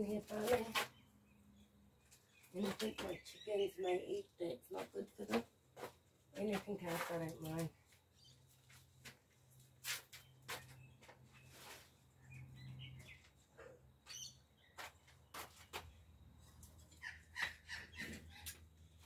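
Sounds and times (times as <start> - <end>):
faint bird chirps: 10.2 - 15.5.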